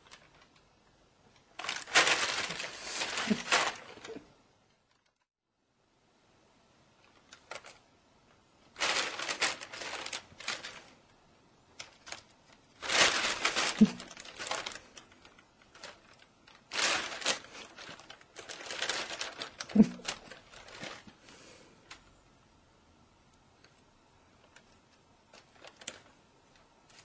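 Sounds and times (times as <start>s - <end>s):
plastic bag crinkling: 0.0s - 0.7s, 1.3s - 4.3s, 7.1s - 7.8s, 8.6s - 11.1s, 11.7s - 21.2s, 24.4s - 27.0s.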